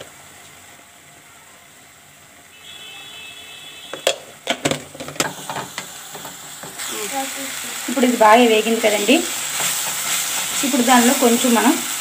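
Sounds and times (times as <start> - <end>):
utensils knocking on pan: 4.0 - 6.8.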